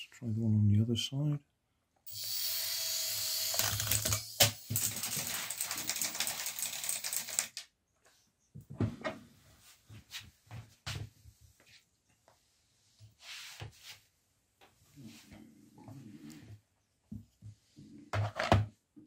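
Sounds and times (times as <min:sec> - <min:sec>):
toy helicopter motor whirring: 0:02.1 - 0:07.5.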